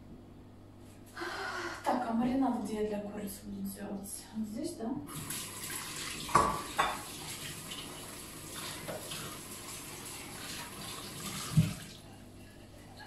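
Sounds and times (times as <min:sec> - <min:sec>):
washing by hand under water: 0:05.1 - 0:12.2
tap running into a metal sink: 0:06.2 - 0:07.4, 0:08.6 - 0:09.4, 0:11.2 - 0:11.9.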